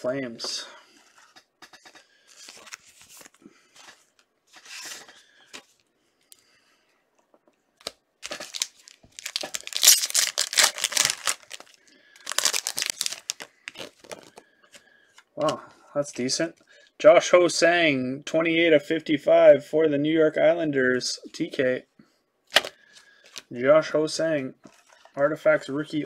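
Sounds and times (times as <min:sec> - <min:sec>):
cards rustling: 0:01.0 - 0:05.9, 0:07.8 - 0:15.6
wrapper tearing and crinkling: 0:07.8 - 0:14.4.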